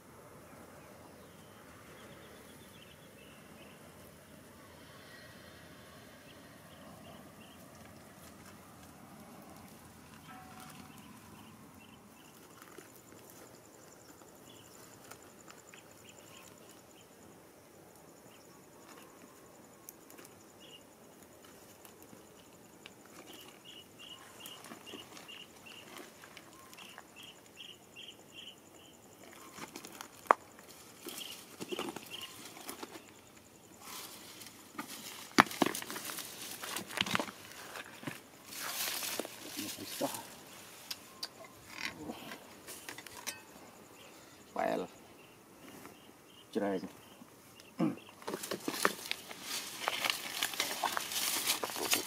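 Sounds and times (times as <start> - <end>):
footsteps through undergrowth: 33.8 - 40.9, 48.2 - 52.0.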